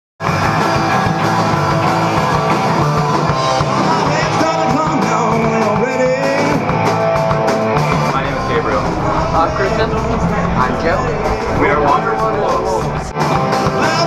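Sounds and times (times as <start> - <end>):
rock music with guitar: 0.2 - 14.0.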